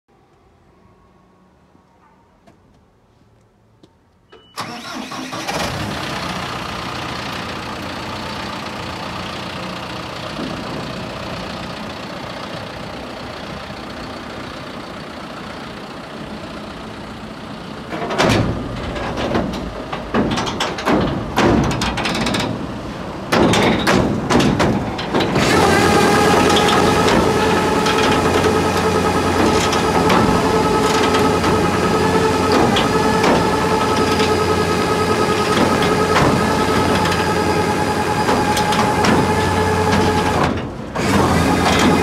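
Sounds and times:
tractor engine running: 0:04.6 - 0:42.0
knocking and rattling: 0:17.9 - 0:42.0.

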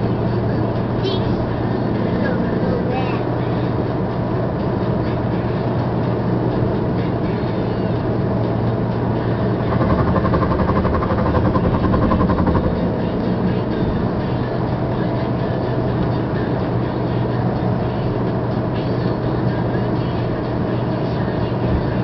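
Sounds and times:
car engine hum: 0:00.0 - 0:22.0
tyre road noise: 0:00.0 - 0:22.0
rapid pulsing buzz: 0:07.4 - 0:15.1.

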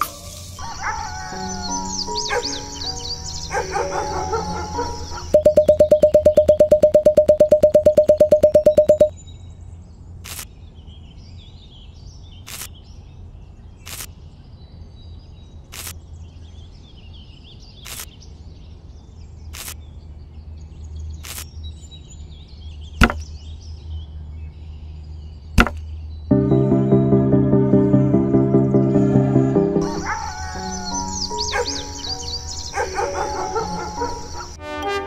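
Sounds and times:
skewers clicking into soil: 0:12.5 - 0:12.7, 0:13.8 - 0:14.1, 0:19.5 - 0:19.8, 0:21.2 - 0:21.5.

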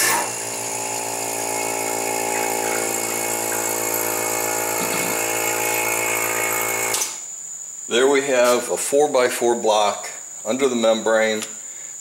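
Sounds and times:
electric vacuum pump humming: 0:00.0 - 0:07.2.

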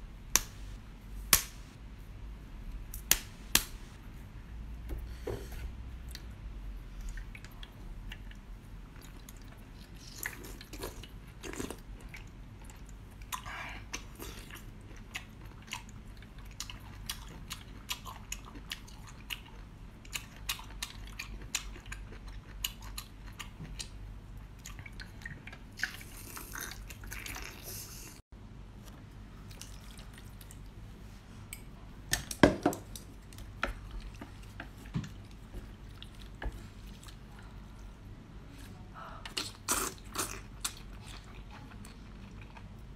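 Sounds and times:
slurping and chewing: 0:09.0 - 0:24.0, 0:24.6 - 0:28.2, 0:39.3 - 0:42.8.

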